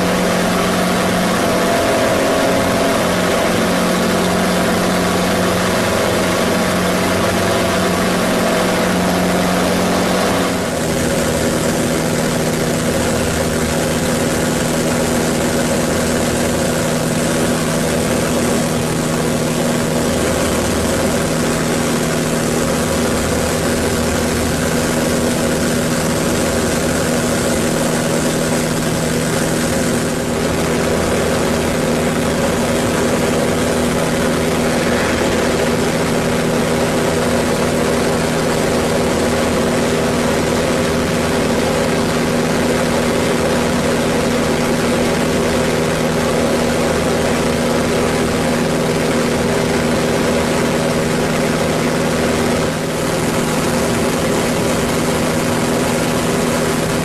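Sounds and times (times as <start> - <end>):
propeller plane engine drone: 0.0 - 57.0
airflow noise: 31.5 - 39.0.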